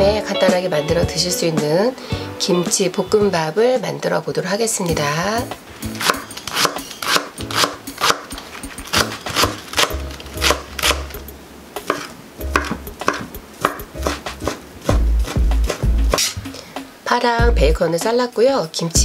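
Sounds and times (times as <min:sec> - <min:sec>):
knife chopping on wooden board: 0:06.0 - 0:11.1, 0:11.8 - 0:16.4.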